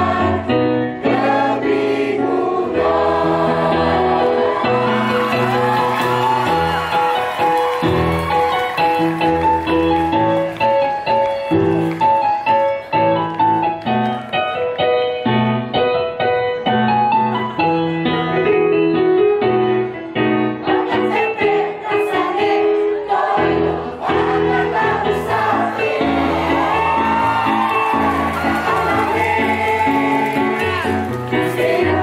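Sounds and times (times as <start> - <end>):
choir singing: 0.0 - 6.2, 20.6 - 32.0.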